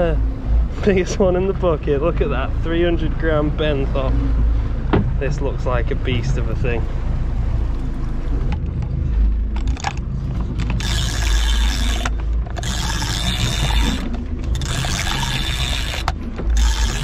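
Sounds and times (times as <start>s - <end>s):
low rumble: 0.0s - 17.0s
fishing reel gears whirring: 9.4s - 17.0s.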